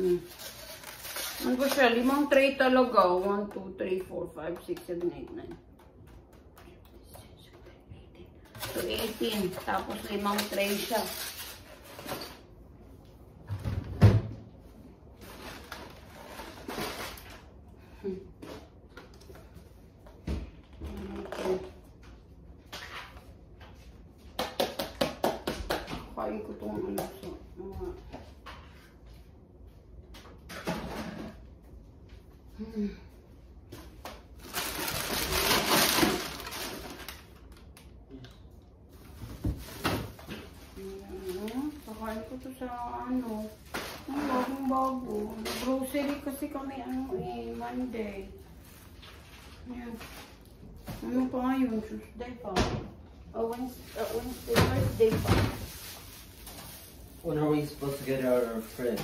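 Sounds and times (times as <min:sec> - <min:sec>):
plastic bags rustling: 0:00.0 - 0:03.2, 0:08.6 - 0:12.6, 0:15.1 - 0:17.6, 0:34.2 - 0:37.6, 0:38.8 - 0:51.5, 0:53.4 - 0:59.0.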